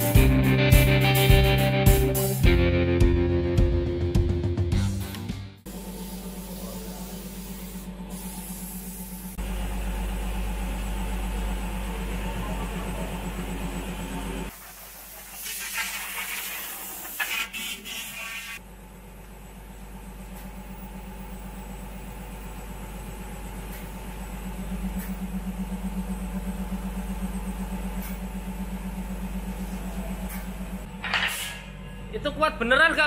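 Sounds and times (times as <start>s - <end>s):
loud hiss of air: 5.7s - 9.4s, 14.5s - 18.6s
spray booth motor hum: 5.7s - 31.0s.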